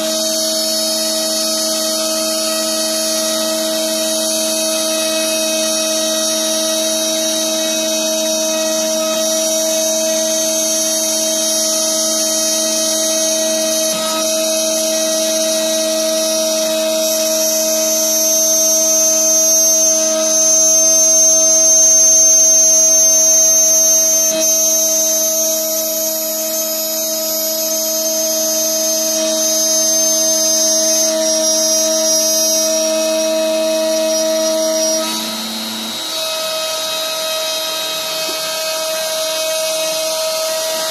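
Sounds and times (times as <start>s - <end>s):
router spindle whining: 0.0s - 40.9s.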